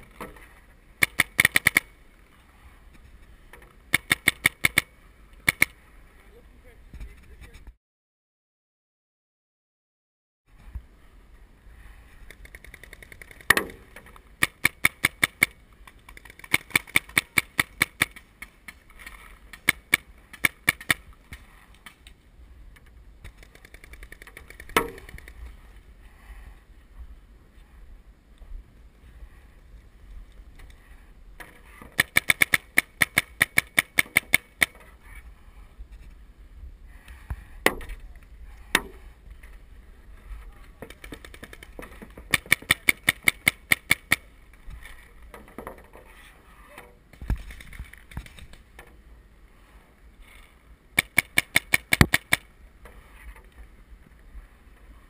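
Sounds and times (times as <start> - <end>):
paintball markers firing volleys: 1.0 - 2.0, 3.9 - 5.8, 12.2 - 22.1, 23.2 - 25.4, 31.8 - 34.8, 40.8 - 44.3, 51.0 - 52.5.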